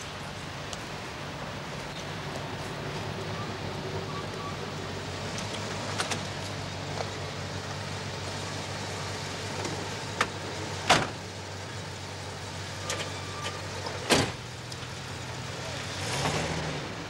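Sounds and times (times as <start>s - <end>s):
car engine idling: 0.0s - 15.9s
car door slamming: 10.2s - 11.2s, 14.0s - 14.4s.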